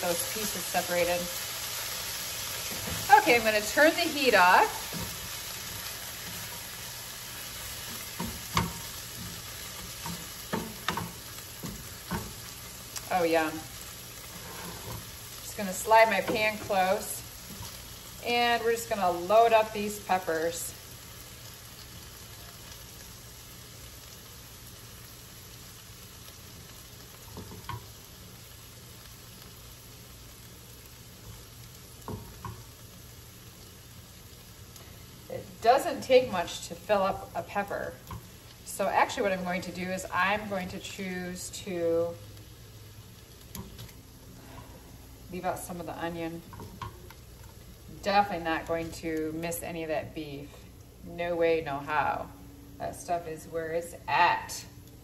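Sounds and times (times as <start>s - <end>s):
food sizzling in a frying pan: 0.0s - 55.0s
spatula scraping and knocking pan: 2.6s - 12.7s, 14.2s - 17.8s
tongs clacking: 43.4s - 44.0s.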